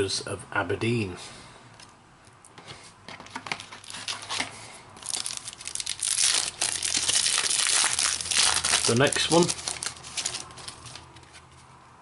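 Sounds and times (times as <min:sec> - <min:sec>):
wrapper crinkling and tearing: 0:03.4 - 0:11.1.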